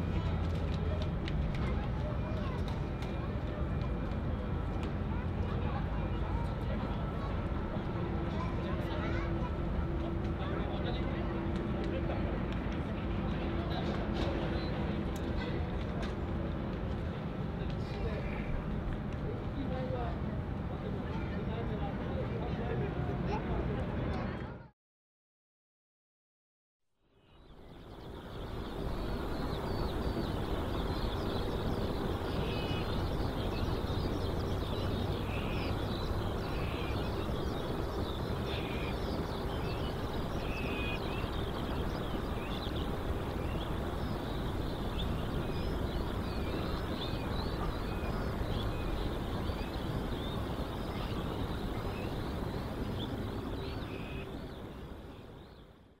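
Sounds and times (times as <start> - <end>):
low background noise: 0.0 - 24.7, 27.2 - 56.0
small birds chirping: 27.2 - 55.8.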